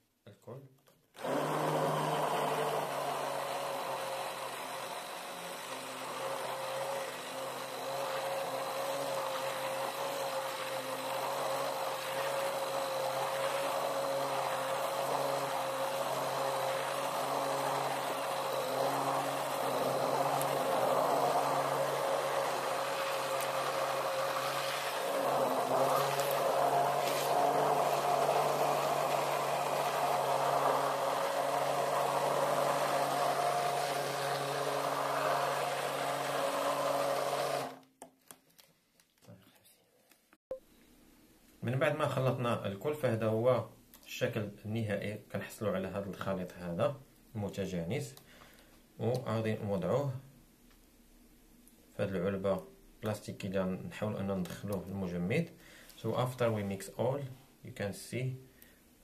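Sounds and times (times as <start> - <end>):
stick blender motor whirring: 1.2 - 37.9.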